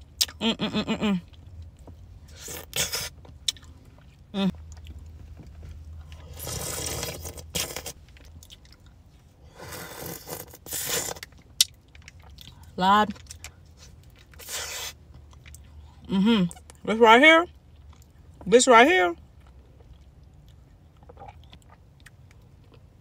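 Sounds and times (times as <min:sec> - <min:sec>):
chewing: 0:01.2 - 0:09.3, 0:09.9 - 0:16.8, 0:19.3 - 0:22.9
slurping: 0:06.2 - 0:08.0, 0:09.6 - 0:11.3
biting frozen fruit bar: 0:06.2 - 0:08.9.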